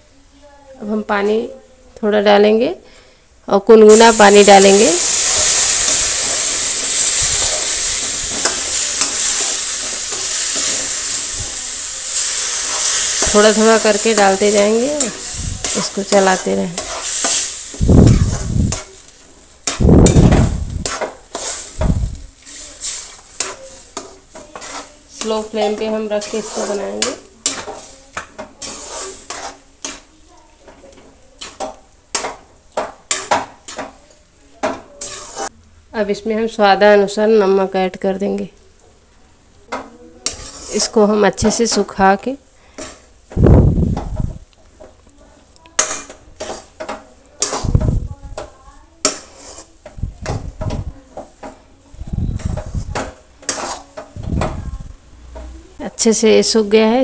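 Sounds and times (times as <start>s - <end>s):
water sizzling in hot pan: 3.8s - 34.0s, 34.7s - 35.5s, 40.2s - 55.0s
metal spatula scraping pan: 4.0s - 32.5s, 33.1s - 34.0s, 34.6s - 35.5s, 40.2s - 43.2s, 45.8s - 51.6s, 52.3s - 54.5s.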